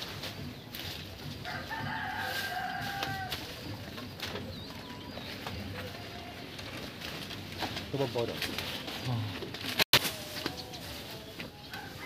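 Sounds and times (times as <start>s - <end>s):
small birds chirping: 0.0s - 8.4s
rooster crowing: 1.4s - 3.5s, 11.6s - 12.0s.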